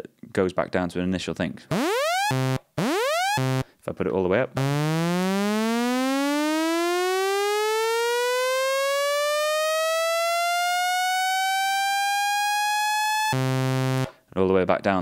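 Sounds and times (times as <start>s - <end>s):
synthesizer note rising in pitch: 1.7s - 3.6s, 4.6s - 14.1s.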